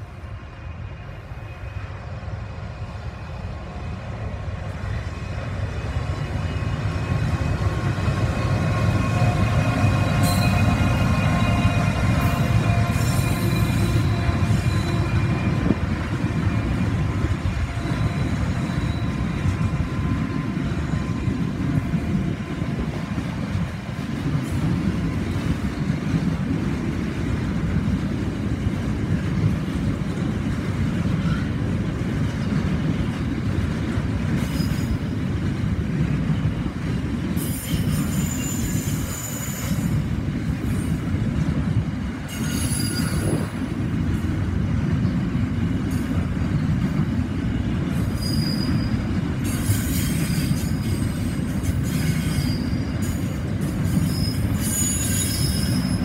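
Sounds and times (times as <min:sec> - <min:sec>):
diesel locomotive engine: 0:00.0 - 0:56.0
freight train wagons rumbling: 0:00.0 - 0:56.0
high-pitched wheel squeal: 0:09.0 - 0:15.6, 0:17.8 - 0:19.3, 0:37.4 - 0:40.0, 0:42.3 - 0:43.5, 0:48.2 - 0:49.0, 0:49.6 - 0:53.2, 0:53.9 - 0:56.0.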